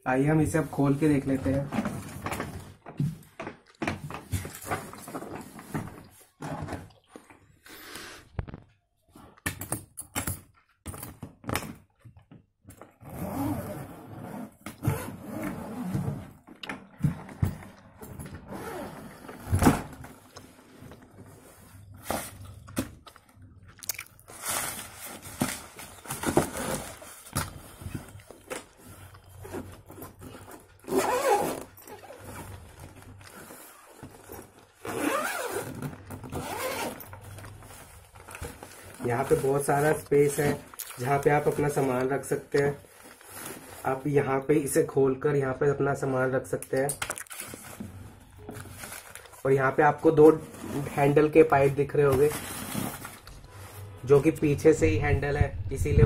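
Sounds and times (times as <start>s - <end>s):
zipper scraping open: 13.0s - 16.3s, 18.4s - 19.5s, 30.8s - 32.6s, 33.3s - 37.5s
suitcase shell and lining rustling: 25.4s - 40.7s.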